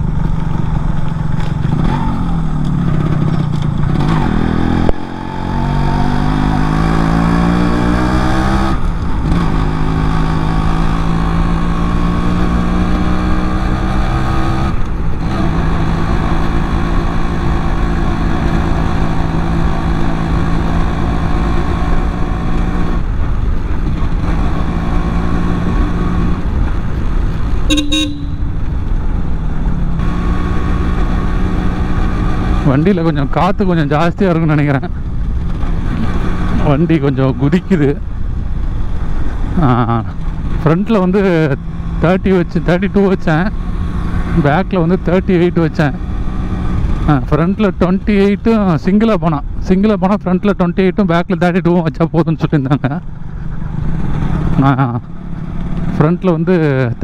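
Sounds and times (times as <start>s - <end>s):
motorcycle engine accelerating: 0.0s - 51.6s, 52.2s - 57.0s
motorcycle horn toot: 27.7s - 28.6s.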